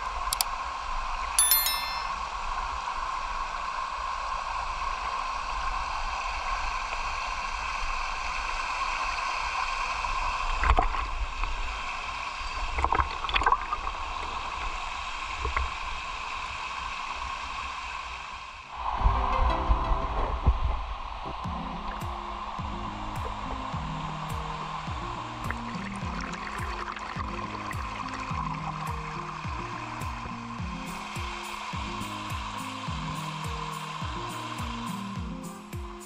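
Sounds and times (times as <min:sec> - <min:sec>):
music: 0:01.4 - 0:02.2, 0:18.9 - 0:36.0.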